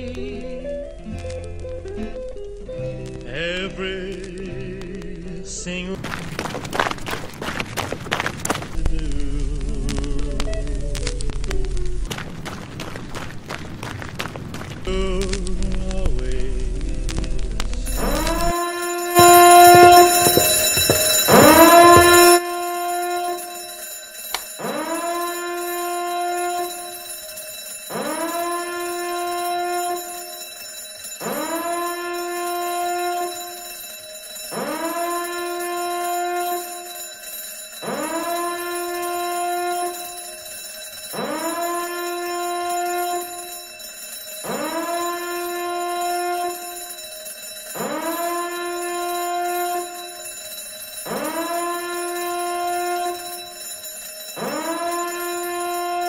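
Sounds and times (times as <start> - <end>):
swooping alarm tone: 17.7 - 56.0.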